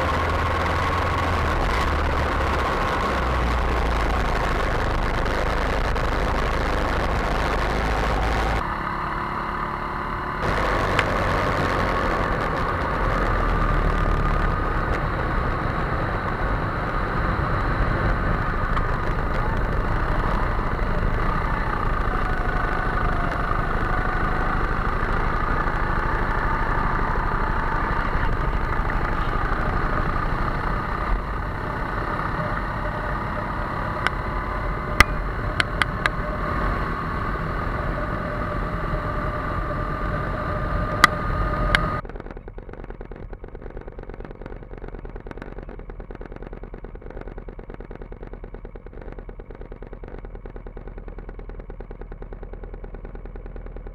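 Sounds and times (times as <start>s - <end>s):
go-kart engines running: 0.0s - 53.9s
sharp clicks: 16.2s - 36.2s.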